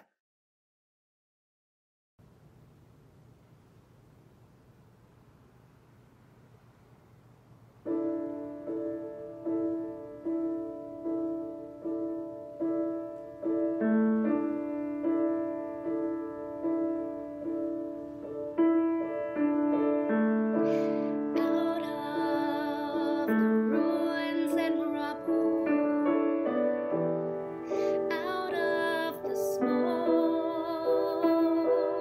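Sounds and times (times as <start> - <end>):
slow piano chords: 7.7 - 32.0.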